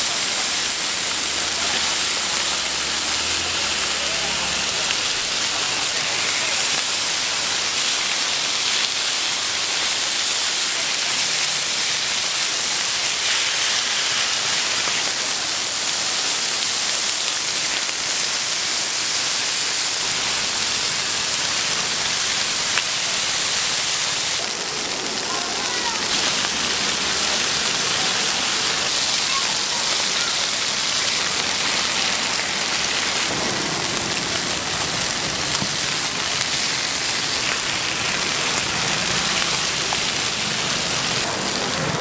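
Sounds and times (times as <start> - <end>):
food frying in hot oil: 0.0 - 42.0.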